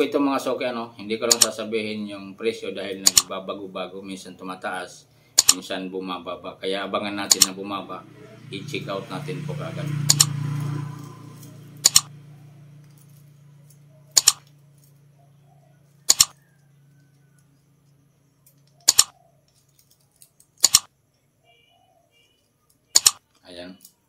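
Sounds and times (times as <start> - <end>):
watch clasp clicking: 10.1 - 10.3, 11.8 - 12.1.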